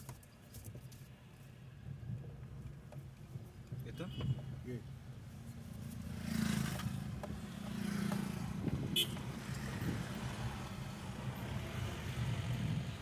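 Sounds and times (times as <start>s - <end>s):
car engine and road drone: 4.6s - 13.0s.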